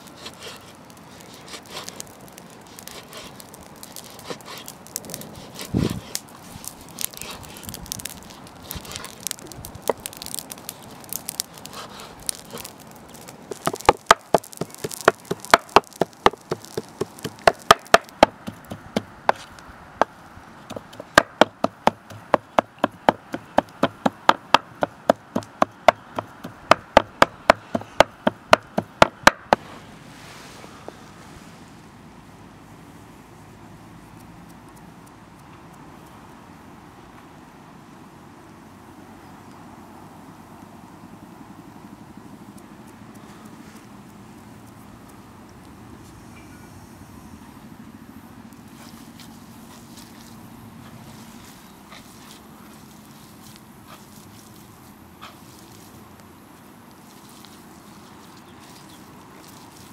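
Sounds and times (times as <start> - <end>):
cleaver chopping meat on board: 20.7 - 29.6.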